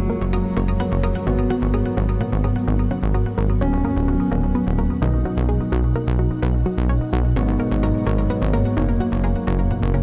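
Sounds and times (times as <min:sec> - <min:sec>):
electronic music with beat: 0:00.0 - 0:10.0.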